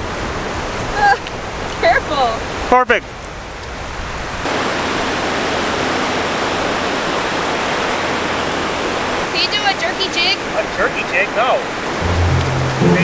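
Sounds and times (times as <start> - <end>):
ocean surf breaking: 4.2 - 13.0.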